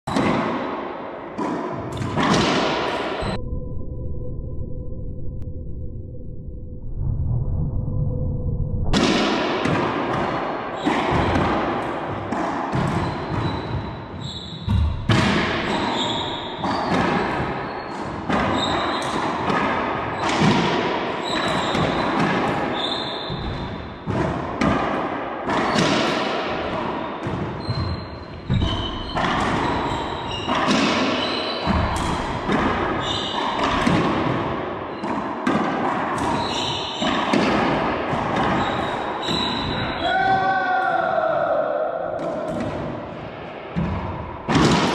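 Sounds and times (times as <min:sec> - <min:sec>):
racquetball hits echoing: 0:00.1 - 0:03.4, 0:08.9 - 0:41.0, 0:41.8 - 0:44.9
sneakers squeaking on hardwood: 0:12.8 - 0:19.4, 0:21.2 - 0:23.8, 0:27.2 - 0:32.2, 0:36.2 - 0:37.4, 0:38.3 - 0:40.1.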